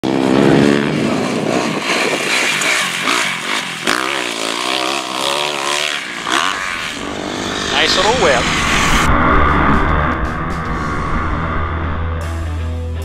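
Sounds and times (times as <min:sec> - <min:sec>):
motocross bike engine revving: 0:00.0 - 0:10.2.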